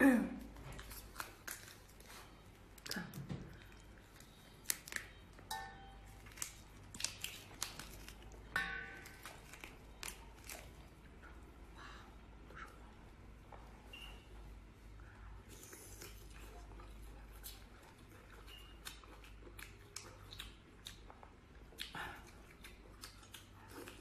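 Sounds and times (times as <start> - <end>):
prawn shell cracking and tearing: 6.2 - 8.4, 9.0 - 10.8.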